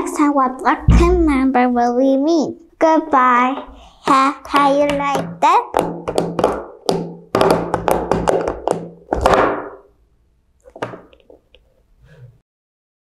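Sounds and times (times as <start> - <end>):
thunks and taps: 4.5 - 9.8.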